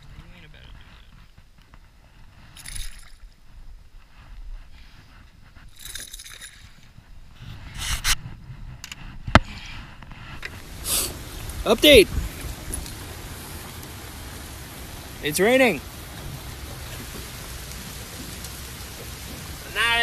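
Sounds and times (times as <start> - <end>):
gear scraping in boat: 10.3 - 19.8
water sloshing against hull: 10.4 - 19.8
fish splashing: 10.5 - 20.0.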